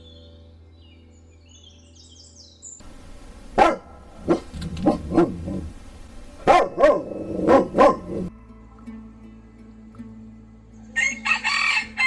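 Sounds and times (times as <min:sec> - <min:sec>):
dog barking: 0:03.5 - 0:05.8, 0:06.4 - 0:08.3.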